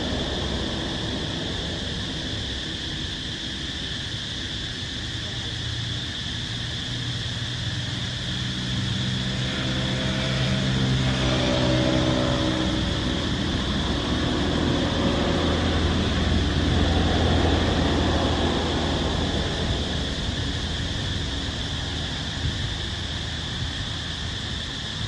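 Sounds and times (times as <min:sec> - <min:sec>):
high insect drone: 0:00.0 - 0:25.0
vehicle engine passing: 0:08.0 - 0:24.2.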